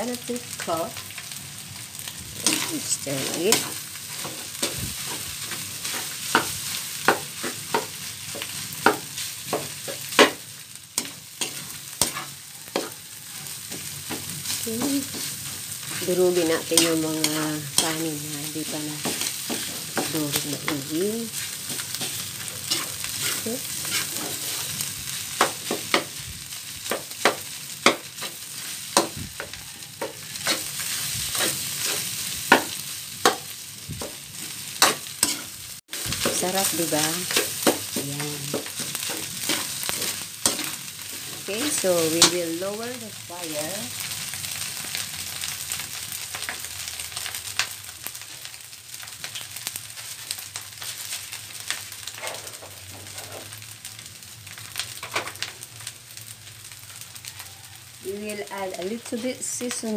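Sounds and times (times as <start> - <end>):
frying sizzle: 0.0 - 59.9
metal spatula scraping a wok: 2.4 - 10.4, 11.0 - 42.5, 52.0 - 53.6.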